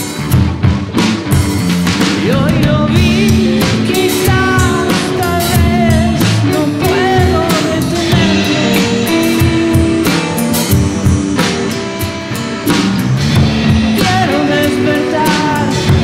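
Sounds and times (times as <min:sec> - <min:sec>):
drum kit: 0:00.0 - 0:16.0
electric guitars: 0:00.0 - 0:16.0.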